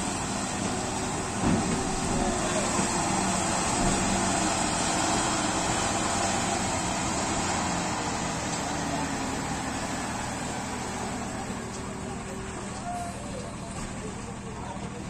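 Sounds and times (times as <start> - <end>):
diesel engines running: 0.0 - 15.0.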